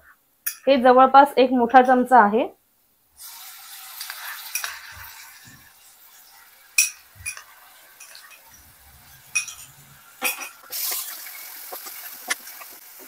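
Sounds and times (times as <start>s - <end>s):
onions frying in oil: 3.2s - 13.0s
spoon clinking on cookware: 6.8s - 8.5s, 9.3s - 10.6s.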